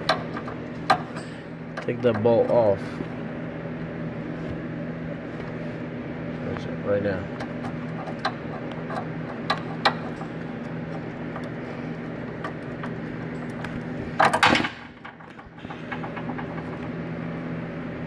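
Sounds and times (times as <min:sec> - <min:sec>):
steady low hum: 0:00.0 - 0:18.0
loud metallic rattle: 0:14.1 - 0:16.9.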